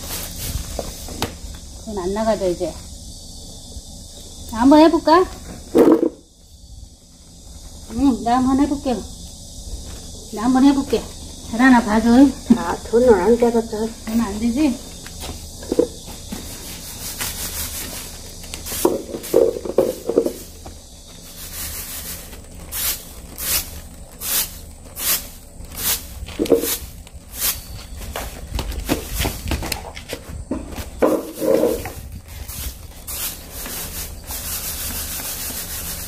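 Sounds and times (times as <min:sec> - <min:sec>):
seeds swishing in winnowing basket: 0:00.0 - 0:01.2, 0:09.6 - 0:29.5, 0:30.8 - 0:36.0.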